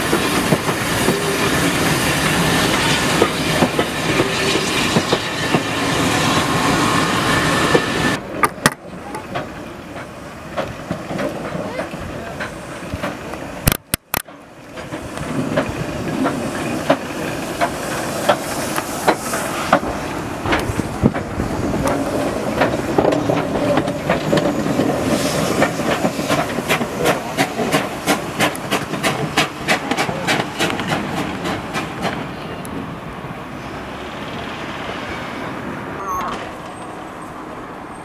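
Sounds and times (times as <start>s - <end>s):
steam hiss: 0.0s - 8.2s, 15.0s - 32.3s
steam locomotive exhaust chuffs: 14.3s - 32.3s.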